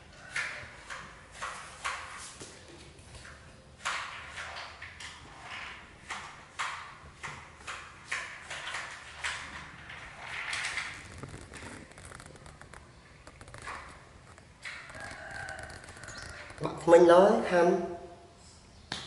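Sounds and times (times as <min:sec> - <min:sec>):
plastic scrape: 0:09.5 - 0:16.7.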